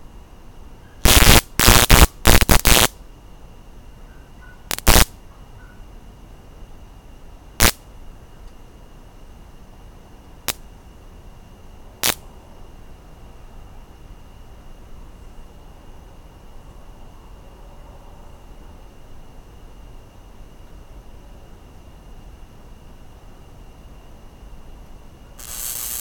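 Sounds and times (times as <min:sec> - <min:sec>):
bug zapper crackling zaps: 0:01.0 - 0:03.0, 0:04.7 - 0:05.2, 0:07.6 - 0:07.8, 0:12.0 - 0:12.2, 0:25.4 - 0:26.0.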